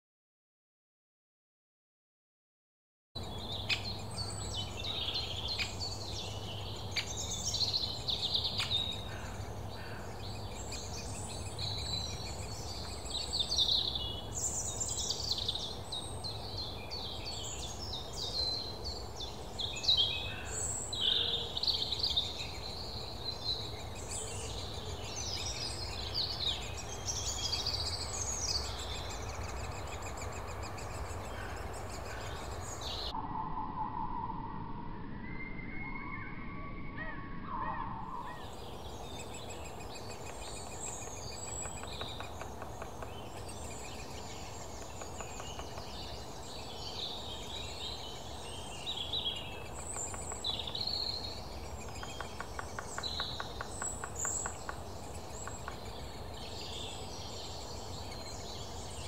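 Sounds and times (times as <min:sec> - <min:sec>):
woodpecker nestlings calling: 0:27.8 - 0:33.1, 0:39.1 - 0:46.2, 0:49.6 - 0:56.3.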